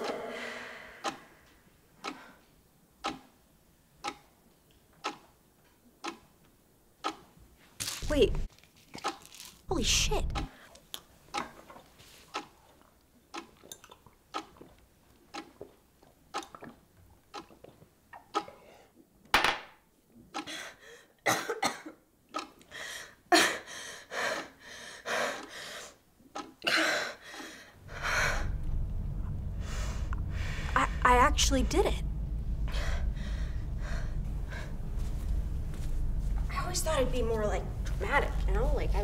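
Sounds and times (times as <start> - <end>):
woman coughing and gagging: 21.2 - 22.0
low steady drone: 27.8 - 39.0.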